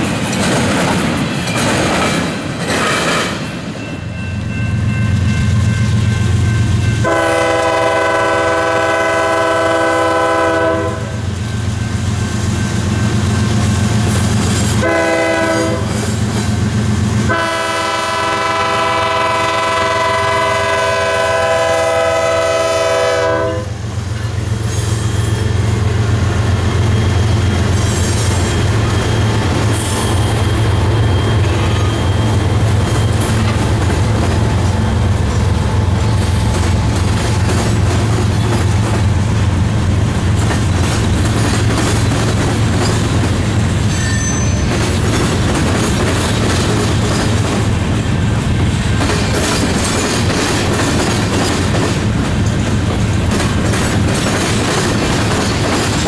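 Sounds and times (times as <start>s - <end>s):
passing train rumble: 0.0s - 56.0s
locomotive air horn blasts: 7.0s - 11.3s, 14.8s - 16.0s, 17.3s - 23.9s.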